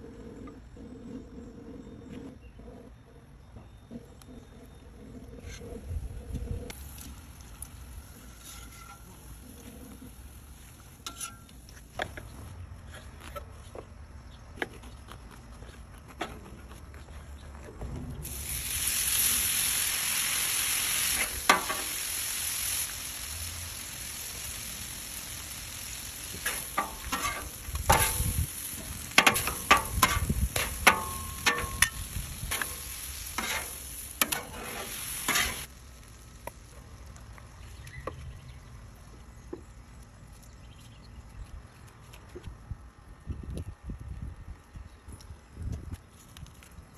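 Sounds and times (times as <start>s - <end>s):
pork sizzling on a griddle: 6.7s - 12.0s, 18.2s - 38.1s
metal spatulas scraping a griddle: 8.2s - 10.0s, 10.9s - 12.0s, 26.3s - 35.7s.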